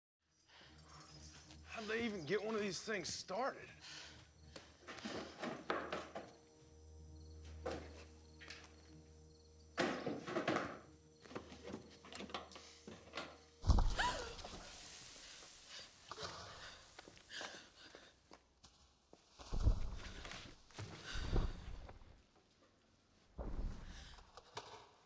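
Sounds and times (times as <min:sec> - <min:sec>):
low music drone: 0:03.6 - 0:14.7.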